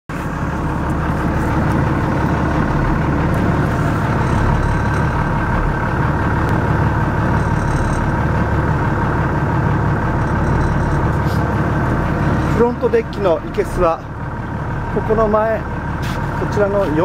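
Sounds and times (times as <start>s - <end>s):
boat engine idling: 0.1s - 17.0s.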